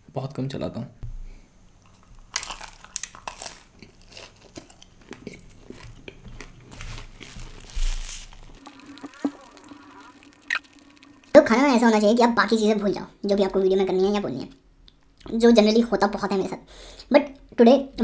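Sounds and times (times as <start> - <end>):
crunchy chewing: 1.8 - 11.2.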